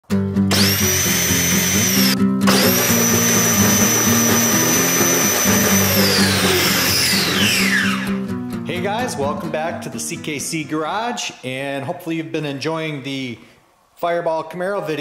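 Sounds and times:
electric motor whining: 0:00.5 - 0:08.2.

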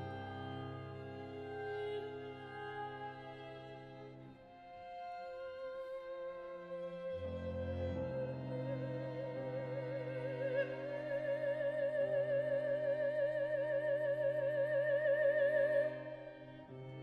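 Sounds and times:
soprano singing with vibrato: 0:08.5 - 0:16.3.

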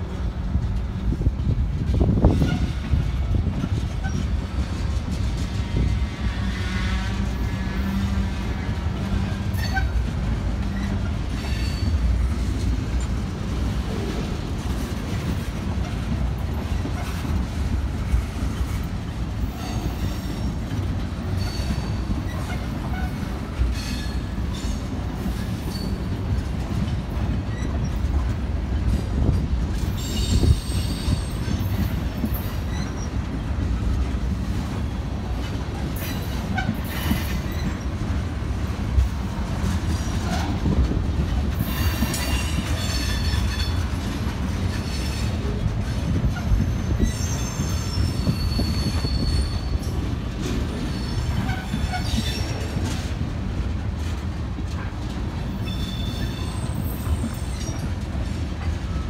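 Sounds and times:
train wheels rumbling and clattering: 0:00.0 - 0:59.0
high-pitched wheel squeal: 0:46.4 - 0:50.0.

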